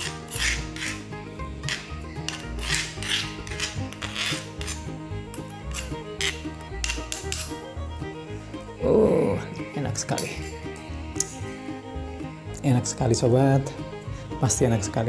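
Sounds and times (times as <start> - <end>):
metal spoon scraping stone mortar: 0.0 - 7.6, 10.0 - 11.5
clinks on metal plate: 5.7 - 7.5.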